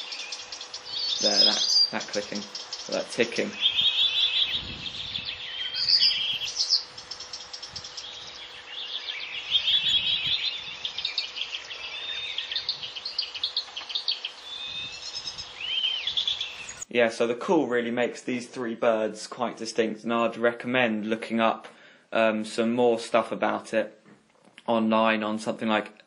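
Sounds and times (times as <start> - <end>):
bird clicking calls: 0.0 - 4.6, 12.6 - 14.4
warbler singing: 0.0 - 17.0
faint steady hum: 0.0 - 26.0.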